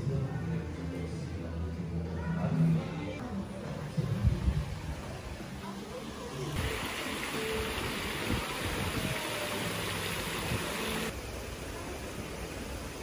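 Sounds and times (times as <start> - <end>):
fountain water falling: 5.6 - 13.0.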